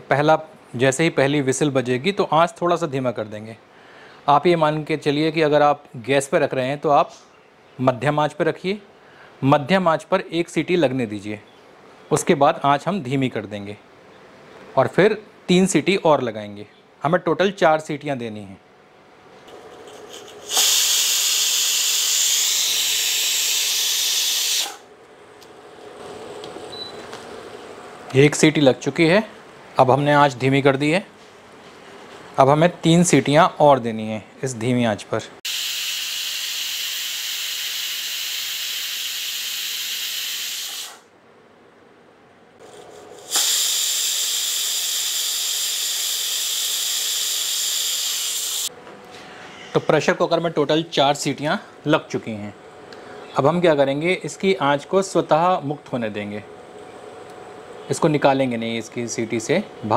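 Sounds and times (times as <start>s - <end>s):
pressure cooker valve hissing steam: 20.4s - 24.9s, 35.5s - 41.0s, 43.2s - 48.7s.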